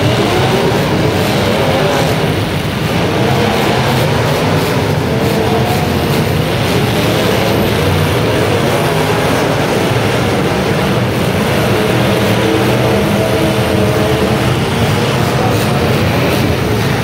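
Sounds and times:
car engines revving: 0.0s - 17.0s.

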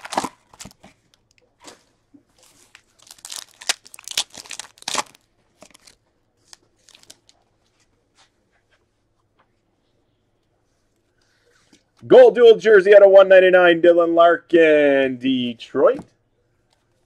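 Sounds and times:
foil wrapper tearing and crinkling: 0.0s - 0.8s, 2.4s - 7.4s.

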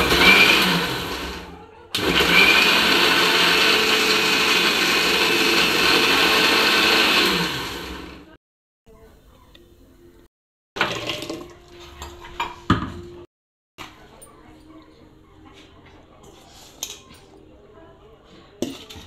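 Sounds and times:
electric mixer grinder running: 0.0s - 8.4s.

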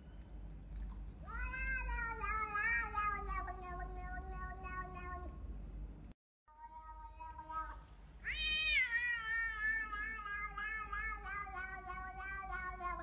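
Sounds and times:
cat yowling: 1.3s - 5.3s, 8.2s - 13.0s.

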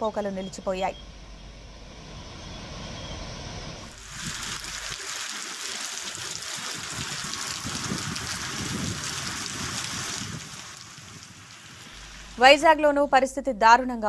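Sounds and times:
heavy rain falling: 3.8s - 12.6s
tyres splashing through water: 3.9s - 12.4s.

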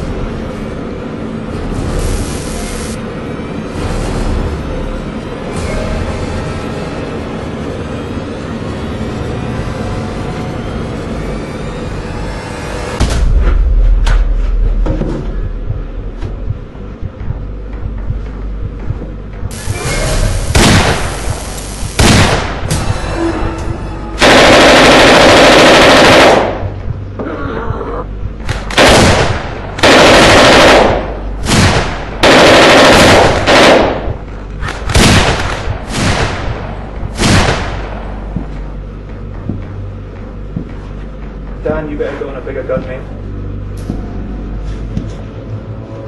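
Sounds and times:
automatic gunfire bursts: 24.2s - 26.6s, 28.8s - 31.2s, 32.2s - 34.1s.

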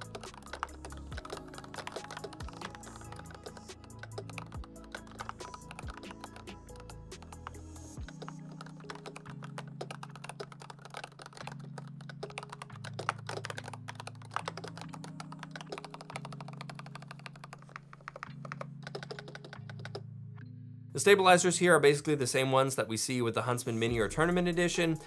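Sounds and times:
fast keyboard typing: 0.0s - 20.0s.

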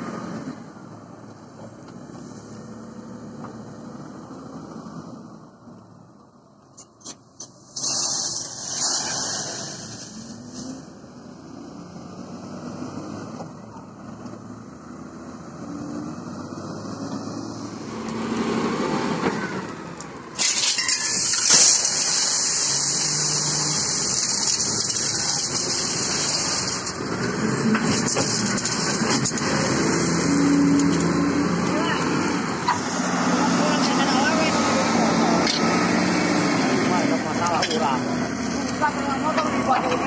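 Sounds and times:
wheel loader diesel engine: 0.0s - 40.0s
loud steady hiss: 20.8s - 26.9s.

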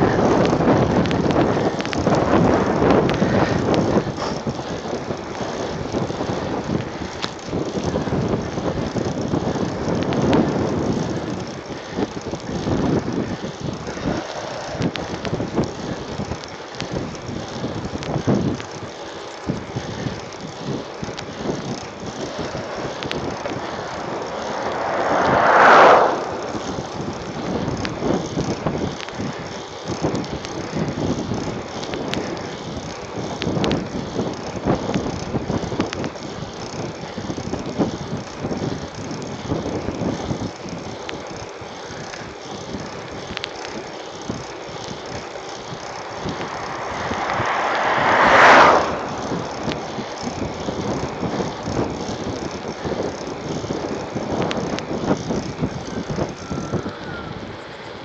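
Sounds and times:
freewheel ratchet ticking: 0.0s - 25.0s, 26.2s - 58.0s
bicycle tyre noise on asphalt: 0.0s - 58.0s
wind buffeting microphone: 0.0s - 58.0s
loud whoosh: 22.4s - 27.0s, 45.9s - 50.4s.

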